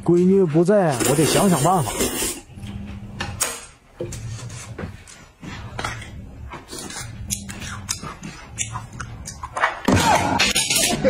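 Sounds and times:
slurping and chewing: 6.0 - 9.6.

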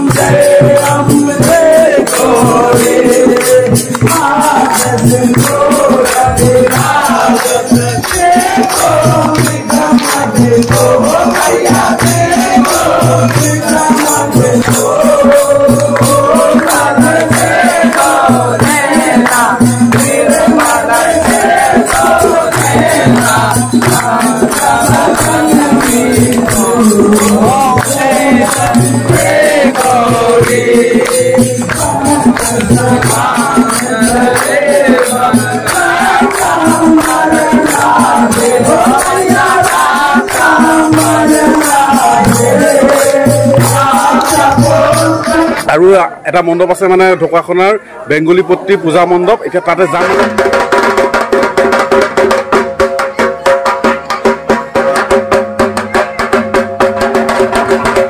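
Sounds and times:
slow drum beat: 0.0 - 45.6
hands clapping: 0.0 - 45.9
group singing and chanting: 0.0 - 58.0.

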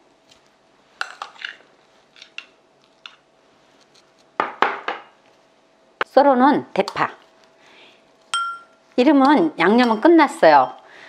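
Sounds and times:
spoon clinking on dishware: 8.3 - 8.8.

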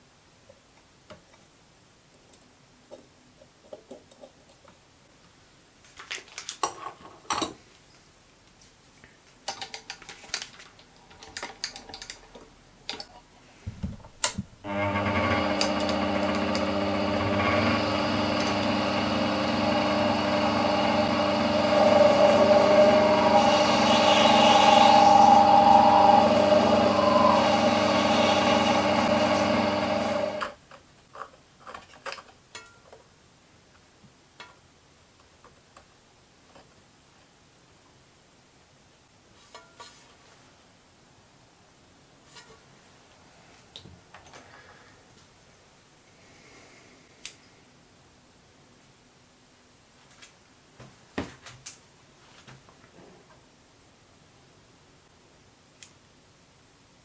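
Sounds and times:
mini lathe motor and gear whine: 14.7 - 30.6.

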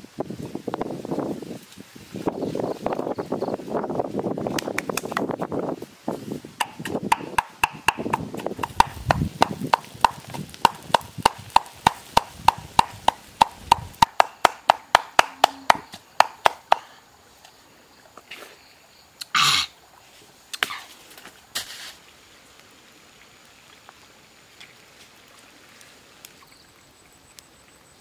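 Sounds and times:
pestle pounding in clay mortar: 6.6 - 16.8.

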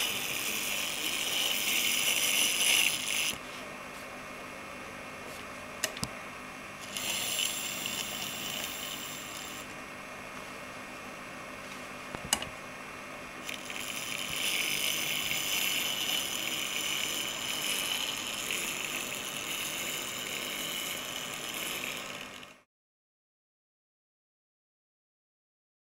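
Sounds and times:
small electric motor whining: 0.0 - 3.5, 6.8 - 9.8, 13.4 - 22.7.

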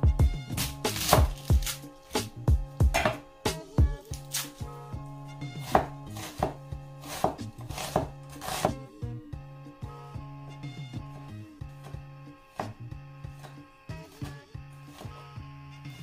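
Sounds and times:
cleaver knocking on wooden board: 2.8 - 3.2.

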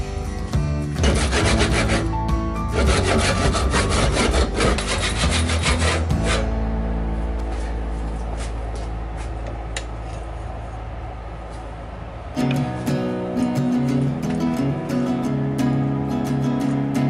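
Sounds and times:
music: 0.0 - 17.0
hand saw cutting wood: 1.0 - 6.5.

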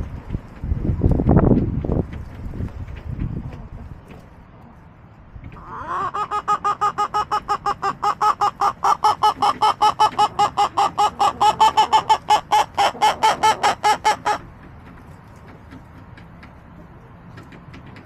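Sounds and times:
hen cackling: 5.5 - 14.5.

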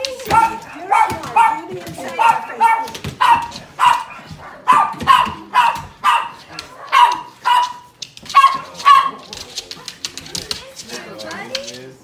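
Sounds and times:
dog barking and yelping: 0.0 - 9.2.

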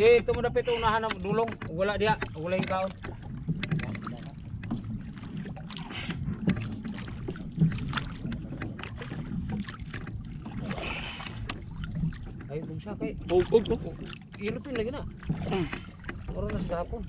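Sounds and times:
sharp knocks and clicks: 0.0 - 5.4, 6.4 - 10.2, 13.2 - 16.7
water lapping against canoe: 0.0 - 17.0.

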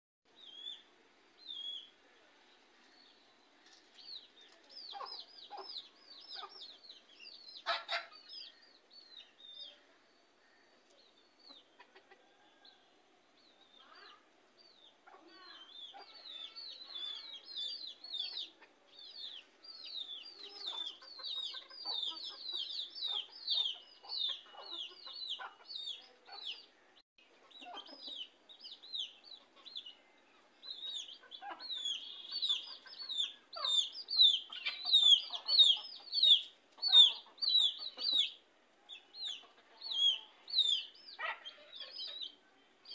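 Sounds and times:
chicks peeping: 3.9 - 9.7, 14.6 - 42.9
hen clucking: 7.6 - 8.5, 15.0 - 26.7, 30.7 - 42.4.

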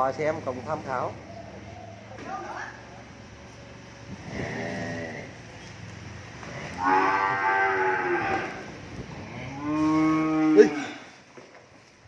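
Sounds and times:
cattle mooing: 4.2 - 5.4, 6.4 - 11.2.

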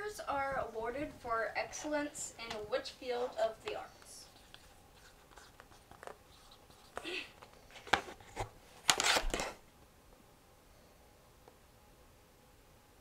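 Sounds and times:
pen scratching paper: 4.2 - 7.0.

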